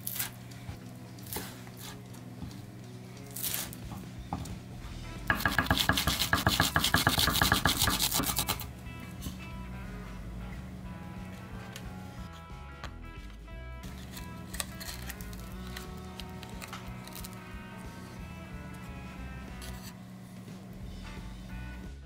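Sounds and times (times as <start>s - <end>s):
knife chopping on wooden board: 5.3s - 8.7s.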